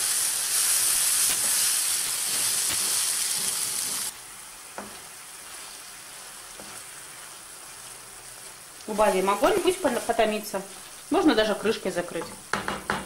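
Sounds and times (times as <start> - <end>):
vegetables sizzling in oil: 0.0 - 13.0
faint stirring knocks: 12.2 - 13.0.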